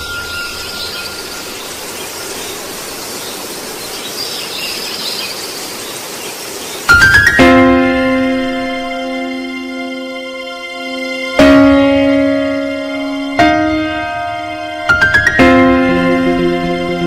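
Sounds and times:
thin high tone: 0:00.0 - 0:02.6
steady hiss: 0:00.0 - 0:09.4
music with held notes: 0:06.9 - 0:17.0.

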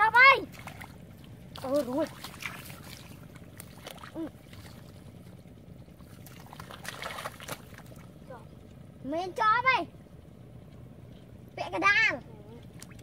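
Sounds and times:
muddy water splashing: 0:00.0 - 0:09.0, 0:12.4 - 0:13.0.

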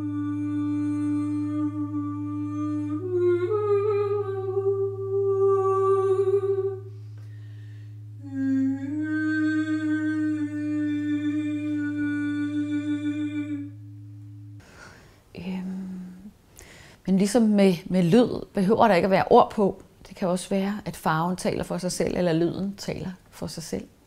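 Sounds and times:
singing bowl drone: 0:00.0 - 0:16.2
woman humming: 0:00.0 - 0:16.4.

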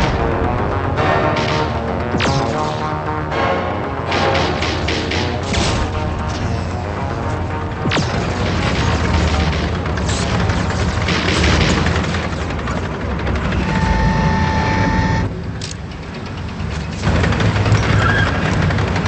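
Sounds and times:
battle soundtrack music: 0:00.0 - 0:15.4
gunfire bursts: 0:04.0 - 0:13.9
booming explosions: 0:04.0 - 0:14.1
high electronic tone: 0:13.5 - 0:15.3.

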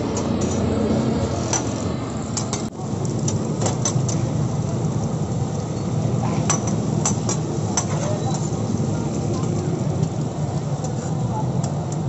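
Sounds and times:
background din and hiss: 0:00.0 - 0:12.0
steel spatula scraping griddle: 0:05.8 - 0:09.6.

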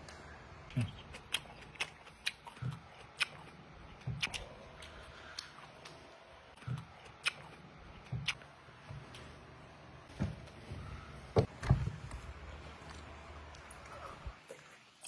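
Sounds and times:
wet chewing mouth clicks: 0:00.7 - 0:06.0, 0:06.6 - 0:08.4.

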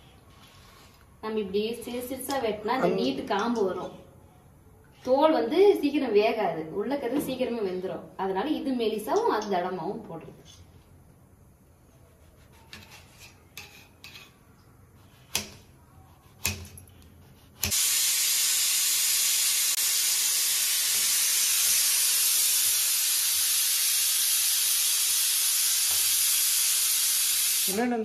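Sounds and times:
knife chopping on stone counter: 0:16.3 - 0:16.8
pressure cooker whistle hiss: 0:17.7 - 0:27.8.

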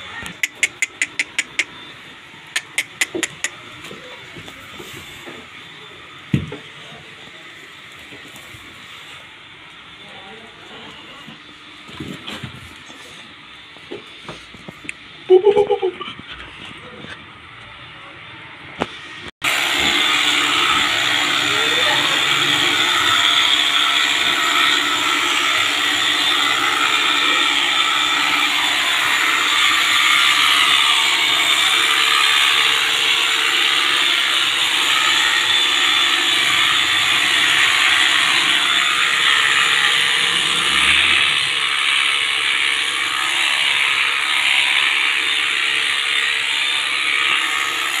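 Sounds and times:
electric clippers buzzing: 0:19.4 - 0:48.0.

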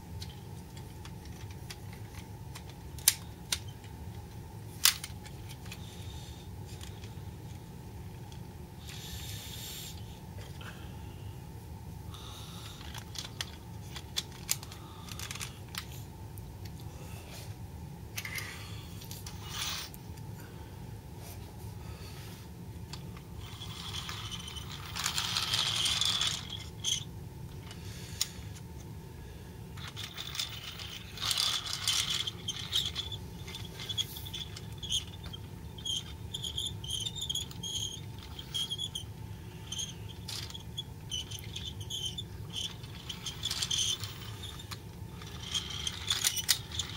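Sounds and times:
plastic toy clicks and rattles: 0:00.7 - 0:03.7, 0:23.4 - 0:27.0, 0:29.8 - 0:39.0, 0:39.7 - 0:46.9
toy truck scraping on floor: 0:19.3 - 0:20.0, 0:23.4 - 0:27.0.

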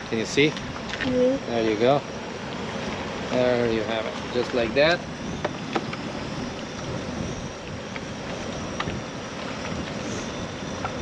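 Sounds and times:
wind on microphone: 0:02.6 - 0:11.0.

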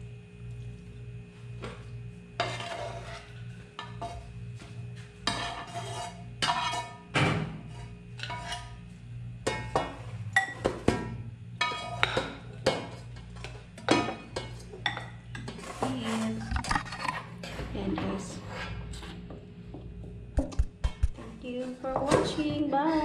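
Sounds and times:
spoon scraping frying pan: 0:02.4 - 0:04.2, 0:05.3 - 0:07.0, 0:07.6 - 0:08.7, 0:11.6 - 0:17.7.

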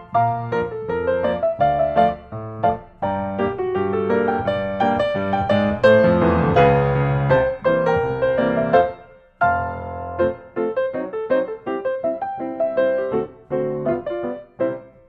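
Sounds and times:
solo piano melody: 0:00.0 - 0:15.0.

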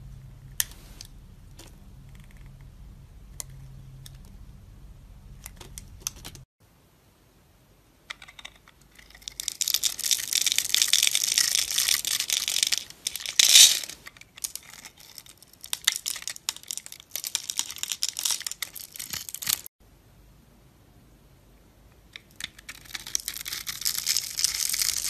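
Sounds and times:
soap cubes crackling and crunching: 0:08.2 - 0:19.7, 0:22.2 - 0:25.0.

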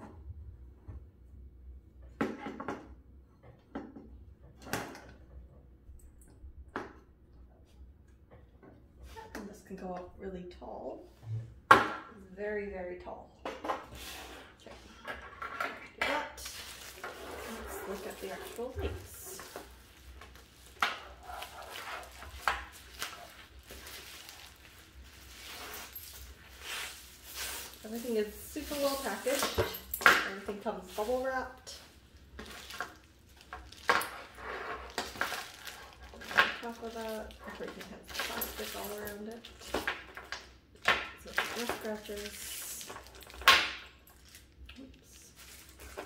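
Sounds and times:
plastic packaging rustling: 0:16.4 - 0:40.2, 0:41.2 - 0:46.0.

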